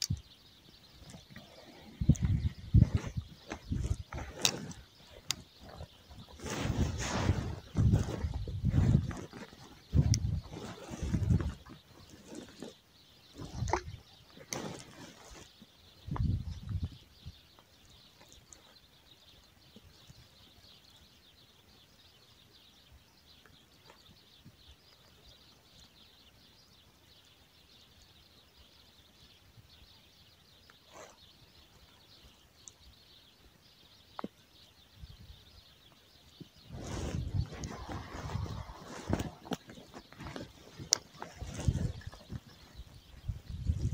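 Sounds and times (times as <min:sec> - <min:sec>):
small birds twittering: 0:00.0 - 0:43.9.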